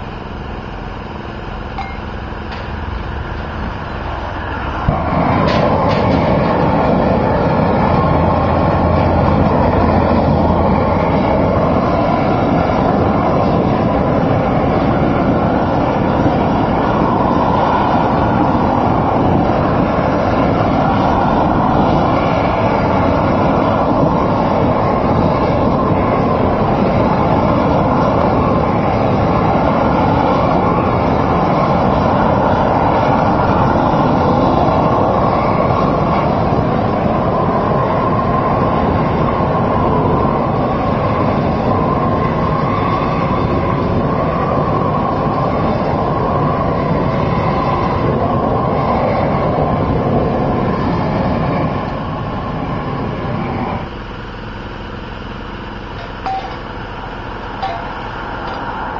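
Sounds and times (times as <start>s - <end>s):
propane torch burning: 0.0s - 58.9s.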